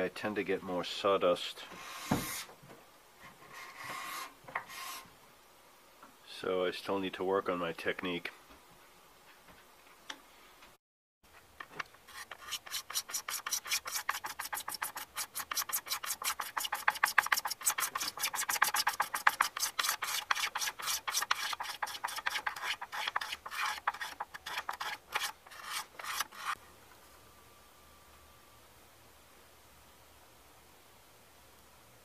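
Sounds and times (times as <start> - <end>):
scraper rasping on wood: 12.1 - 26.6.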